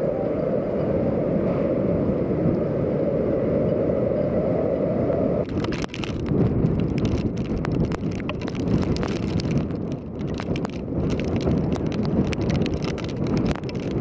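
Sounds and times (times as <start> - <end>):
strong wind buffeting microphone: 0.0 - 14.0
rain striking microphone: 5.1 - 14.0.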